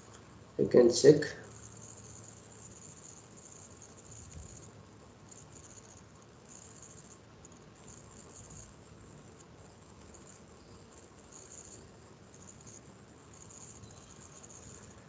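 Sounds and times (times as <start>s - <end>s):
faint microphone background noise: 0.0s - 15.0s.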